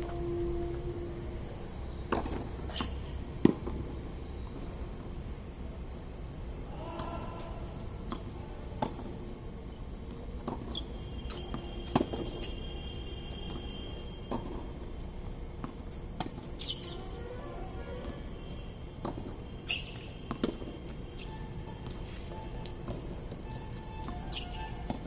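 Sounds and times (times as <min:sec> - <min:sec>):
tennis ball hits: 0:11.3 - 0:12.5, 0:19.0 - 0:20.8.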